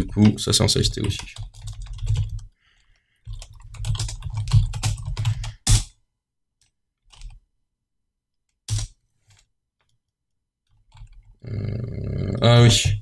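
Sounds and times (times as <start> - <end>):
computer keyboard typing: 0.0 - 2.6, 3.2 - 5.8, 7.1 - 7.4, 8.7 - 8.9, 10.7 - 11.4.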